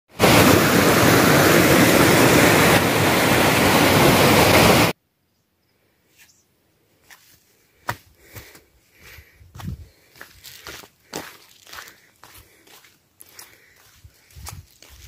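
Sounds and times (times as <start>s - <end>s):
water rushing over rocks: 0.1s - 5.0s.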